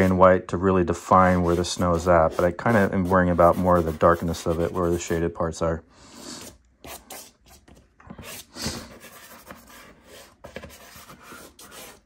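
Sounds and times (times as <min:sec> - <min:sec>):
pastel scratching on paper: 0:01.3 - 0:05.1, 0:08.2 - 0:12.0.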